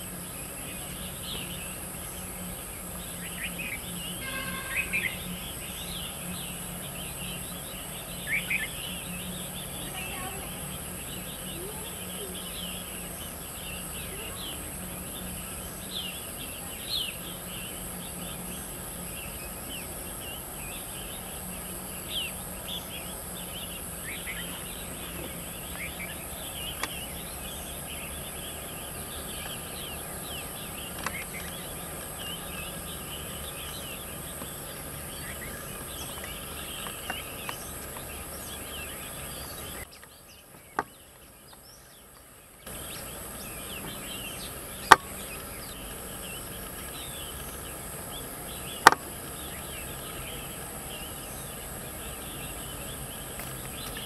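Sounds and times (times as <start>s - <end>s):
high-pitched insect drone: 0.0s - 39.8s
small birds chirping: 0.0s - 54.0s.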